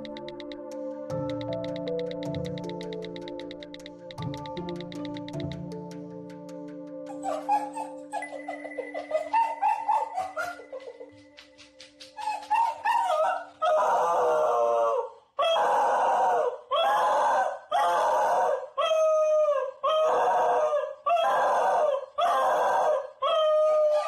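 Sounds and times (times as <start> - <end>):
dog howling: 7.1 - 8.5, 9.1 - 10.8, 12.2 - 24.0.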